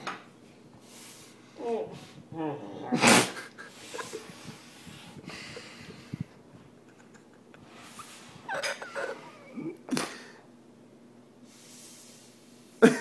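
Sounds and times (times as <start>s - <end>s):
man breathing through nose: 3.7s - 6.4s
man snorting: 7.8s - 10.4s.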